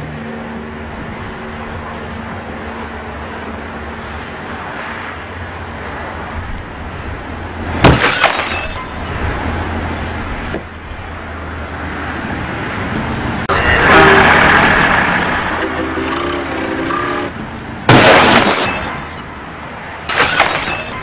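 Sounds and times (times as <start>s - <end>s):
road traffic: 0.0s - 21.0s
car crash with breaking glass: 7.8s - 8.9s, 17.9s - 19.2s, 20.1s - 21.0s.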